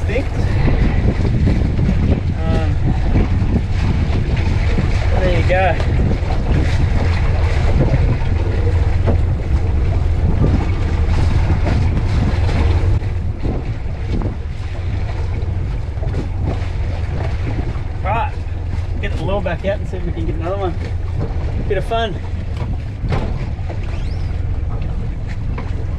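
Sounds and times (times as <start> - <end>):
water splashing against hull: 0.0 - 25.9
wind buffeting microphone: 0.0 - 25.9
short knocks: 22.3 - 24.9.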